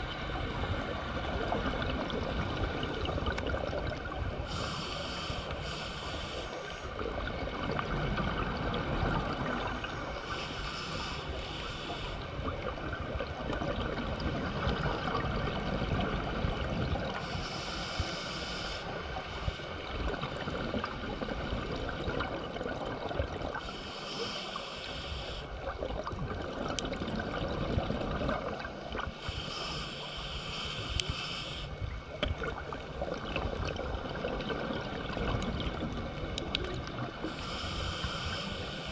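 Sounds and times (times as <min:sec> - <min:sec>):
exhaled air bubbling: 0:00.0 - 0:05.2, 0:06.8 - 0:10.4, 0:11.0 - 0:23.7, 0:25.2 - 0:29.6, 0:30.9 - 0:38.9
regulator inhalation hiss: 0:04.5 - 0:06.9, 0:09.9 - 0:12.2, 0:17.2 - 0:19.8, 0:23.6 - 0:25.5, 0:29.2 - 0:31.8, 0:37.2 - 0:38.9.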